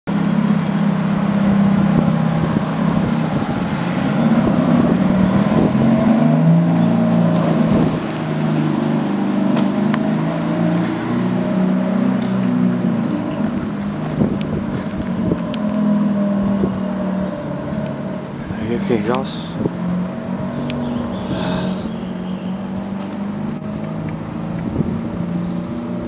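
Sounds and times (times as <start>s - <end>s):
car engine pulling away: 0.1s - 26.0s.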